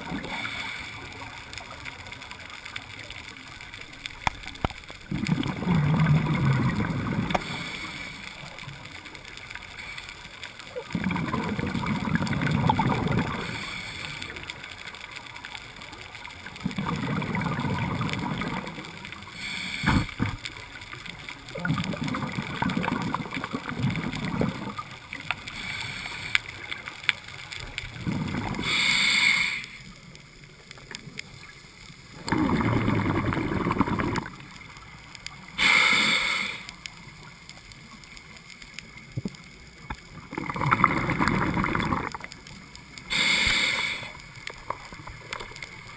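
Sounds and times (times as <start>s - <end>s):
bubbles rumbling: 0.0s - 0.4s, 2.9s - 7.6s, 10.6s - 13.7s, 16.2s - 25.5s, 27.6s - 28.8s, 30.7s - 35.6s, 38.9s - 43.2s
diver breathing through regulator: 7.3s - 8.4s, 19.3s - 20.4s, 25.4s - 26.6s, 28.0s - 29.9s, 35.6s - 36.8s, 43.1s - 44.2s.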